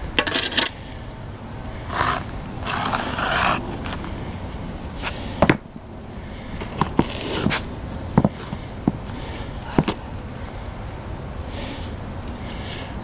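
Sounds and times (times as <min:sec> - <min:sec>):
spade scraping soil and stone: 0:00.2 - 0:00.8, 0:01.8 - 0:04.1, 0:06.6 - 0:07.7.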